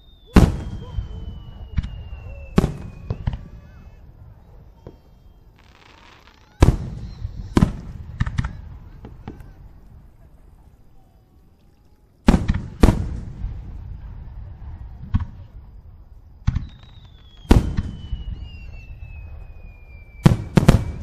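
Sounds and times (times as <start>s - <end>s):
firework shells bursting: 16.4s - 21.0s.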